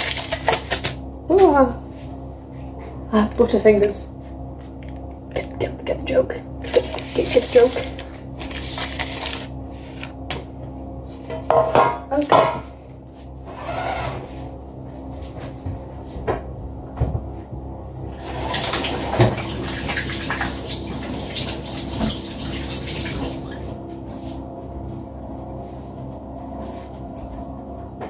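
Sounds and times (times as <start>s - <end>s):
tap running into sink: 18.3s - 22.3s.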